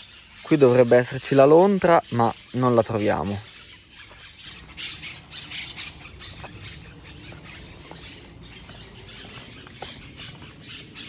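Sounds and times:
footsteps crunching on leaves: 3.4 - 11.0.

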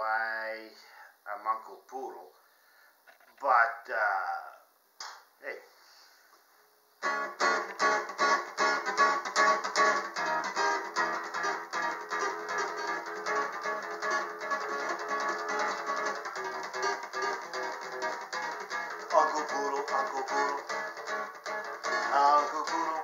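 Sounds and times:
acoustic guitar strummed and picked: 7.0 - 23.0.

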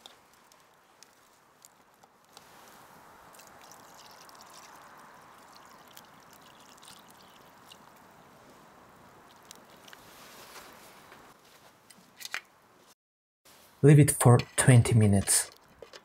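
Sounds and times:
wood fire crackling: 0.0 - 11.4
water pouring into a metal pot: 3.3 - 7.9.

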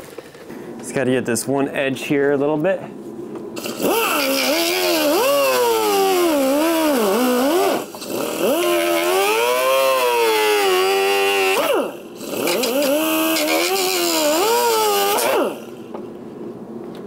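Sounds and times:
rotary tool cutting plastic: 3.6 - 15.8.

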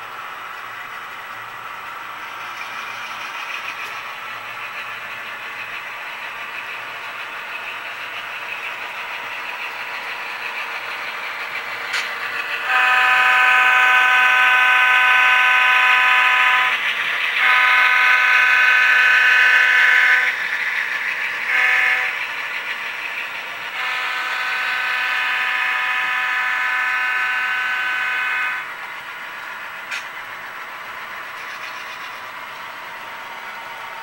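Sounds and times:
train air horn blasts: 12.6 - 16.8, 17.4 - 20.4, 21.4 - 22.2, 23.7 - 28.7.

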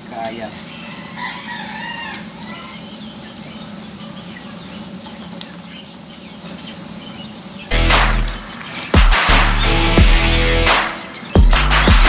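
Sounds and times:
chickens clucking: 0.0 - 11.4
steady low hum: 2.3 - 11.9.

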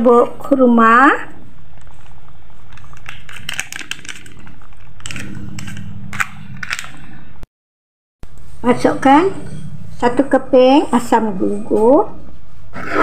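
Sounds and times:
plastic sachet crinkling: 2.7 - 7.1
low steady hum: 8.2 - 12.8.

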